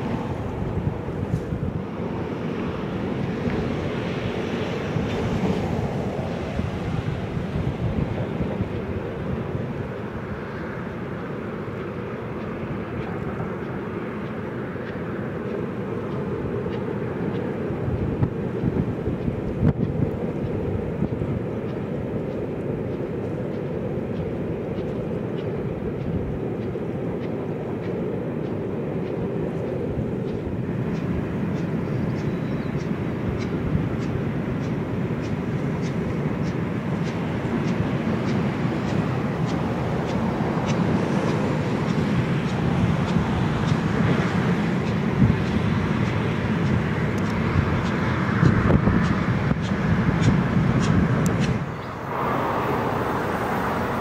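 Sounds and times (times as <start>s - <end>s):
distant steam train rumble on bridge: 0.0s - 54.0s
wind on microphone: 0.0s - 54.0s
faint regular ticks: 11.7s - 51.6s.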